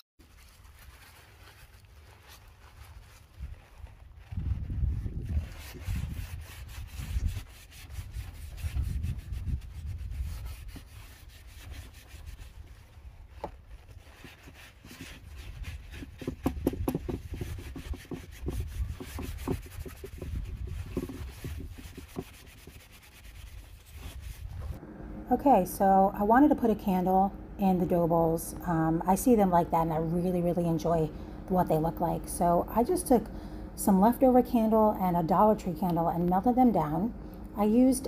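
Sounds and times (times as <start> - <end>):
cloth rag rubbing wood: 0.2 - 24.8
low rumble: 24.2 - 38.0.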